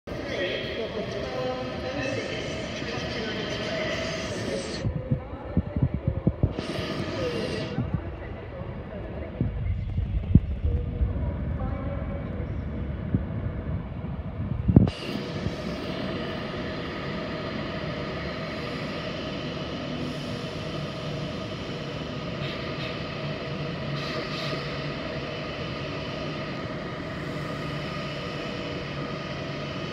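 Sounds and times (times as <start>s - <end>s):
train humming with held tones: 0.1s - 29.9s
electric train rolling: 12.3s - 29.9s.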